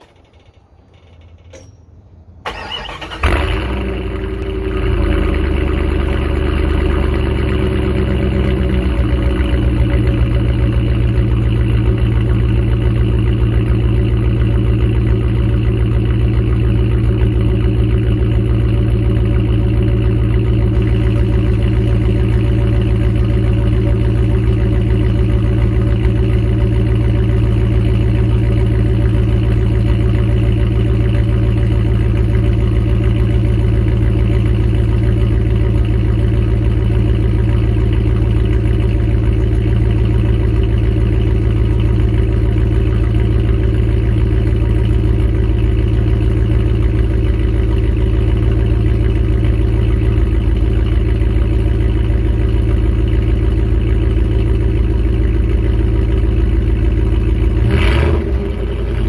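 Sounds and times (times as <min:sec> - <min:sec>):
engine cranking: 0:00.0 - 0:04.0
engine starting and idling: 0:00.0 - 0:59.0.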